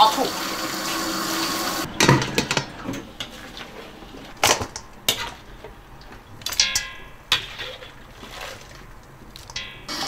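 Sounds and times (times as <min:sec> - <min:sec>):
utensils and dishes knocking: 0:01.8 - 0:05.4
ringing dish clink: 0:06.5 - 0:07.2, 0:09.6 - 0:09.9.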